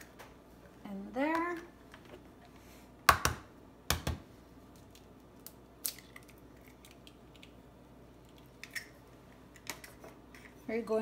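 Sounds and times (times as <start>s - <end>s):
eggs cracking on a dish rim: 4.8s - 7.6s.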